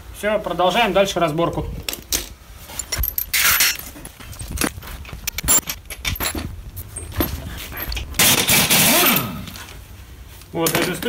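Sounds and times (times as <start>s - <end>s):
metal tools clinking and clattering: 1.9s - 9.6s, 10.6s - 11.0s.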